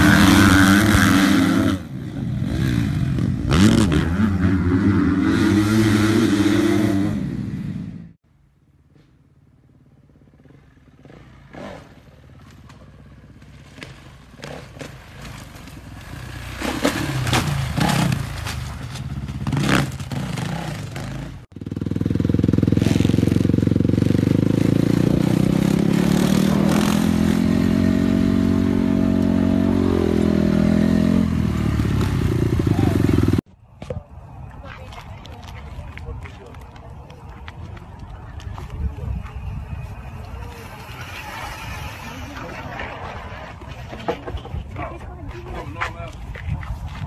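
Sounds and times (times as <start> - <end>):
dirt bike engine revving: 0.0 - 8.2, 10.0 - 33.5.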